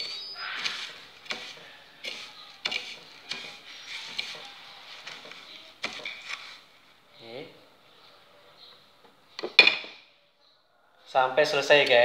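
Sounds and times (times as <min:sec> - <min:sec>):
breadcrumbs rustling: 0:00.0 - 0:06.8.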